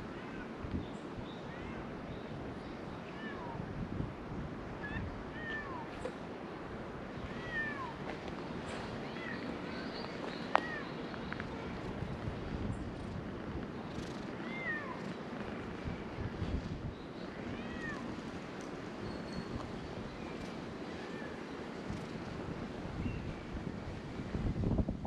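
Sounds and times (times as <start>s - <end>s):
wind on microphone: 3.2s - 6.0s, 6.7s - 25.0s
cats meowing: 7.2s - 8.0s, 14.4s - 15.1s, 17.4s - 18.1s.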